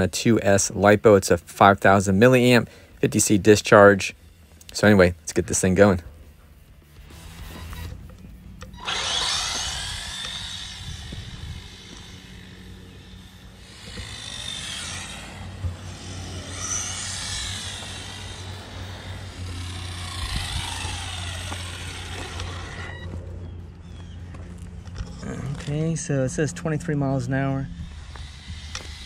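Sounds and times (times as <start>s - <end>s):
rc car motor whining: 6.9s - 26.1s, 27.2s - 29.0s.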